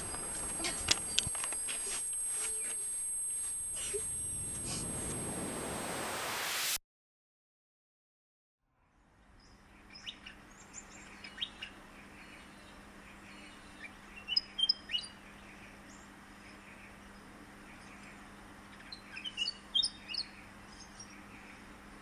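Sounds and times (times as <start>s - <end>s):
birds chirping: 0.0s - 3.4s, 9.4s - 22.0s.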